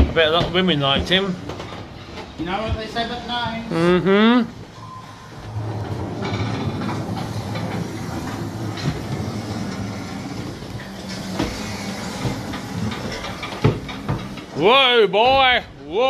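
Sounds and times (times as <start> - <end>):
mechanical rumble: 4.7 - 15.1.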